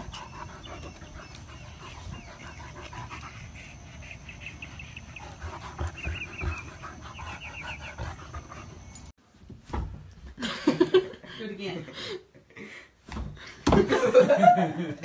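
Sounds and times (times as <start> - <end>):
dog panting: 0.0 - 9.1.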